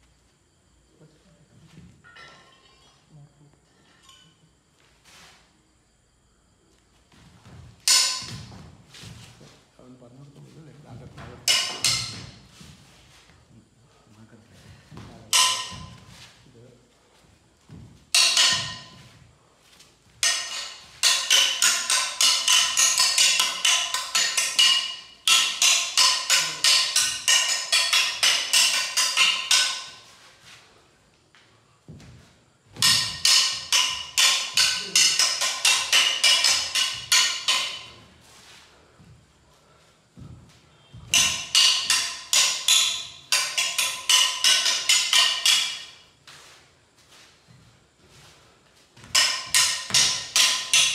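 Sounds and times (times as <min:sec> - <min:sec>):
metal weapons clashing: 0:07.8 - 0:08.6, 0:11.4 - 0:12.4, 0:15.3 - 0:16.1, 0:18.1 - 0:19.0, 0:20.2 - 0:30.0, 0:32.8 - 0:38.0, 0:41.0 - 0:46.0, 0:49.1 - 0:50.9.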